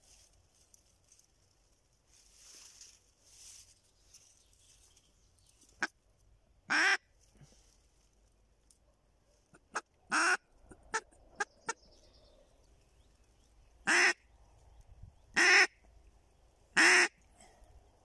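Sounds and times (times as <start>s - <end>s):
duck quacking: 9.5s - 11.8s, 13.9s - 14.2s, 15.4s - 15.8s, 16.8s - 17.2s.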